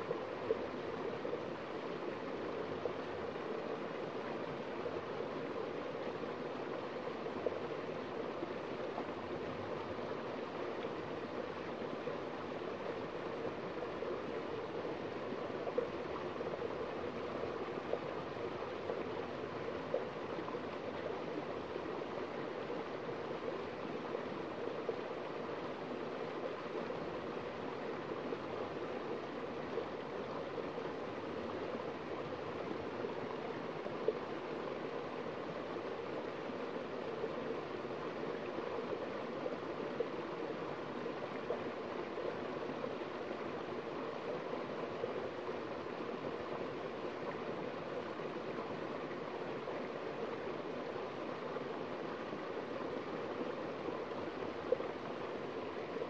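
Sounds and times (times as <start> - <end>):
small waterfall rushing: 0.0 - 56.0.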